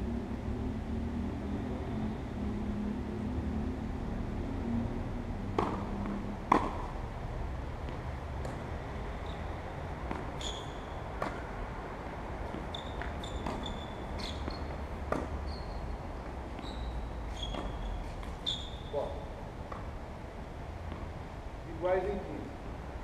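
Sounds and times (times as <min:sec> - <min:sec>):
tennis ball bounces: 0:05.5 - 0:07.0, 0:07.8 - 0:08.7, 0:09.9 - 0:11.6, 0:12.4 - 0:15.4, 0:17.3 - 0:18.9, 0:19.7 - 0:20.0
shoes squeaking on court: 0:07.9 - 0:11.5, 0:12.4 - 0:19.8.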